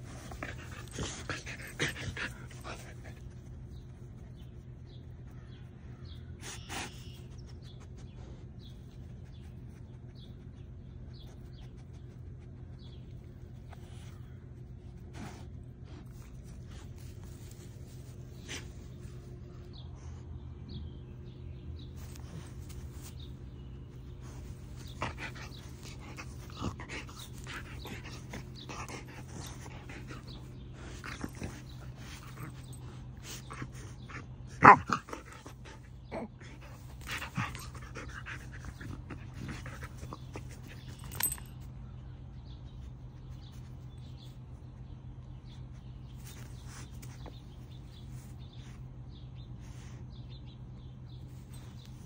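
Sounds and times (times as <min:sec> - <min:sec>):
small dog noises: 0:00.0 - 0:05.3, 0:06.3 - 0:19.9, 0:21.7 - 0:52.0
steady low hum: 0:00.0 - 0:52.0.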